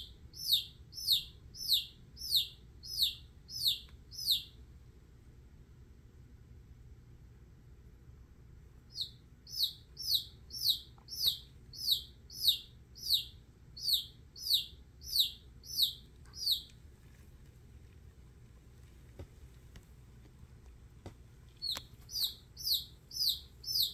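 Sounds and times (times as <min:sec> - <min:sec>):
chick peeping: 0:00.0 - 0:04.6, 0:08.9 - 0:16.8, 0:21.6 - 0:23.9.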